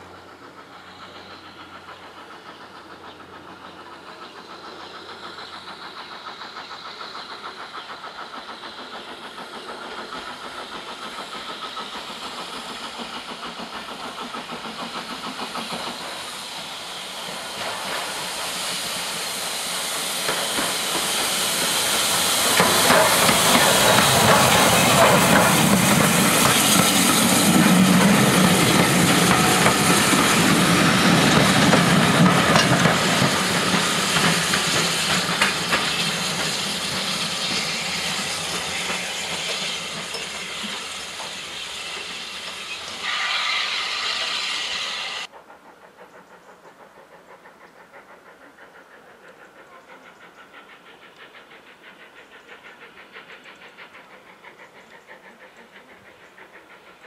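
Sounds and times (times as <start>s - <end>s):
steam hissing: 0.0s - 57.0s
steam locomotive working: 0.0s - 57.0s
train coaches passing: 0.0s - 57.0s.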